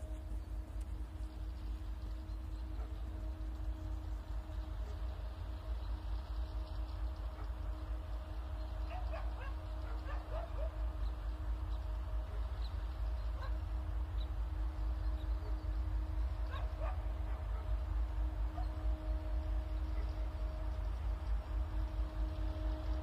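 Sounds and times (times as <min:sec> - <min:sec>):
faint steady hum: 0:00.0 - 0:23.0
steady low rumble: 0:00.0 - 0:23.0
dog barking and yipping: 0:08.9 - 0:10.8, 0:16.5 - 0:17.7.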